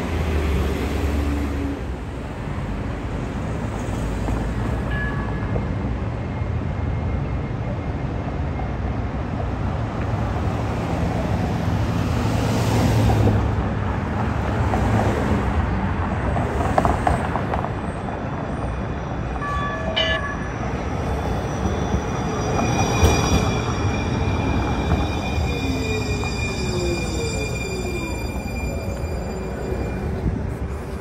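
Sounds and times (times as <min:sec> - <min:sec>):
road traffic: 0:00.0 - 0:31.0
train wheels rumbling on rails: 0:08.3 - 0:31.0
high-pitched train whine: 0:17.8 - 0:31.0
clear tones: 0:19.5 - 0:20.6.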